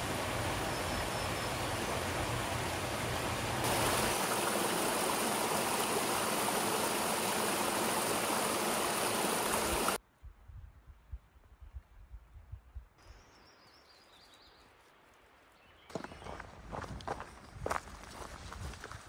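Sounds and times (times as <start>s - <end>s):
creek water flowing: 0.0s - 10.0s.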